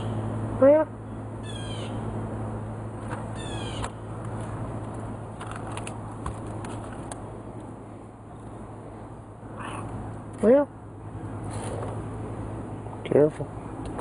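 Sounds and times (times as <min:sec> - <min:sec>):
air conditioner unit humming: 0:00.0 - 0:14.0
cat meowing: 0:09.6 - 0:09.9.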